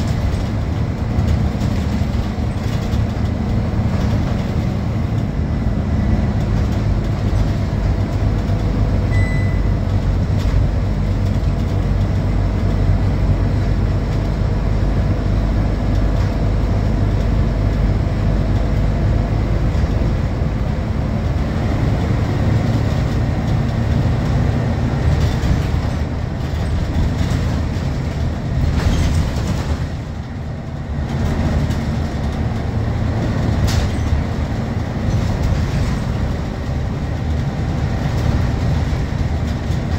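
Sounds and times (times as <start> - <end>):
interior rattles: 0.0 - 9.0, 22.1 - 39.9
diesel bus engine running: 0.0 - 39.9
road and tyre noise: 0.0 - 39.9.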